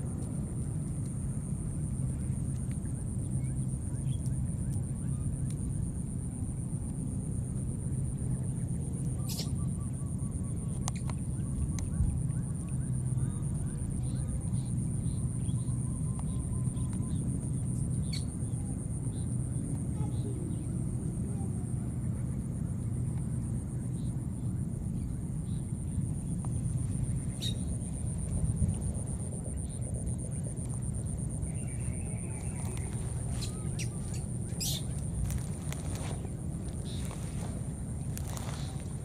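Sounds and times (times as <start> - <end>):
low rumble: 24.0 - 39.0
high-pitched insect drone: 26.6 - 39.0.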